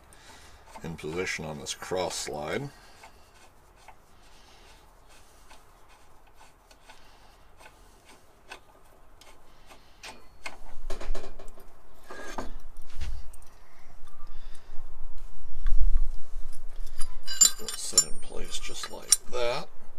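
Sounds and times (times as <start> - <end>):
metal parts scraping and clinking: 16.4 - 19.5.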